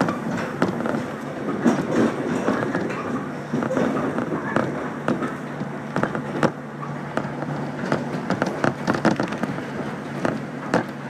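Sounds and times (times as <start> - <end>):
train clicks and rattles: 0.0 - 11.0
train low hum: 0.0 - 11.0.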